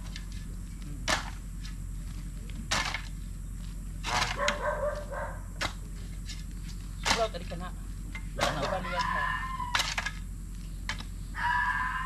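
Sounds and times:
shovels scraping soil: 0:04.0 - 0:04.6, 0:08.4 - 0:10.2
dog barking: 0:04.3 - 0:05.5.

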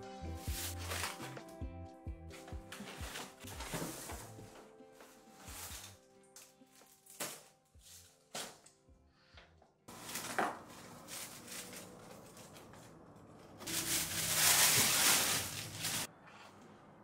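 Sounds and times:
soft music: 0:00.0 - 0:12.6, 0:13.6 - 0:16.1
packing paper rustling: 0:00.4 - 0:01.4, 0:02.7 - 0:08.5, 0:09.9 - 0:12.9, 0:13.6 - 0:16.1.

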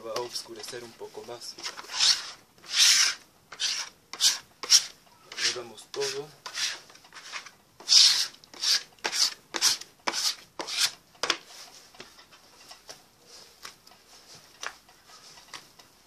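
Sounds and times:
hand scraping dough on wooden table: 0:00.2 - 0:12.4.

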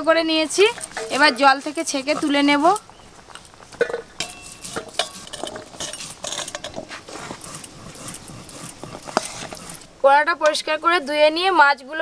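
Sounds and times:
metal spoon clinking on pots: 0:00.4 - 0:06.8.

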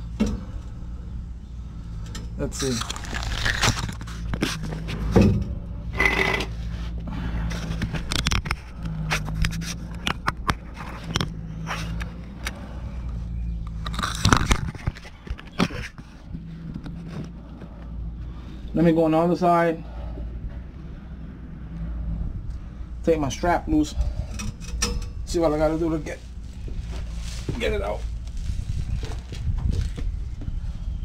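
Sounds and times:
metal scraping: 0:01.8 - 0:17.6.

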